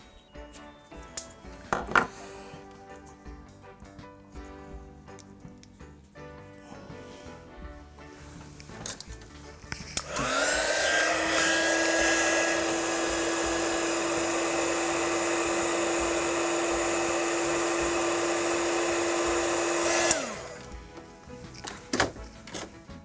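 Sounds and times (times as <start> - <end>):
heat gun fan whine: 10.0 - 20.8.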